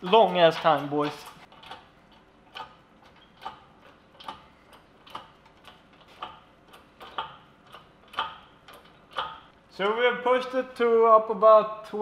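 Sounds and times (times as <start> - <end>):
hydraulic press hand pump clicking: 0.0 - 9.5.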